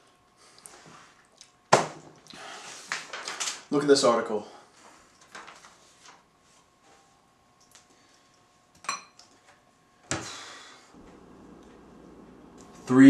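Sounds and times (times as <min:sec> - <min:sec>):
dish or cutlery clinks: 0:08.8 - 0:09.2.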